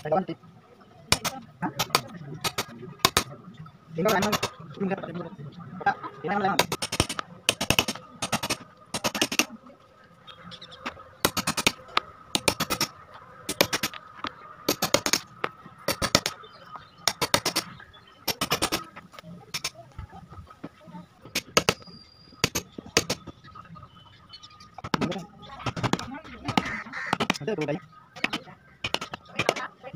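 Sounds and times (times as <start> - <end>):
hammer tapping a prying tool: 1.1 - 3.2, 6.6 - 9.5, 11.2 - 11.8, 12.4 - 12.9, 13.5 - 13.9, 14.7 - 15.2, 15.9 - 16.4, 17.1 - 17.6, 18.3 - 18.8, 21.4 - 21.8, 22.4 - 23.3, 24.8 - 27.4, 28.2 - 29.6.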